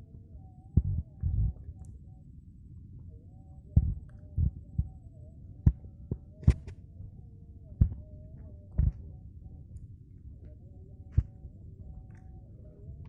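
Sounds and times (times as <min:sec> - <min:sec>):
faint wavering hum: 0:00.0 - 0:13.0
dull low thumps: 0:00.8 - 0:01.7, 0:03.8 - 0:05.0, 0:07.8 - 0:08.1.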